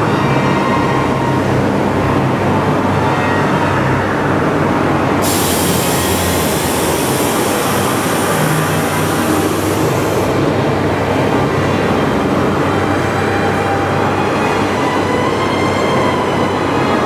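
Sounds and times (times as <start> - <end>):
hiss: 5.2 - 10.4.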